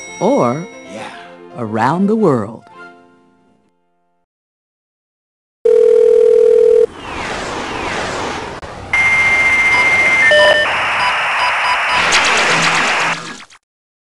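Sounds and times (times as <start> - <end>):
dial tone: 5.6 - 6.9, 9.0 - 10.7
high modem answer tone: 5.7 - 6.9.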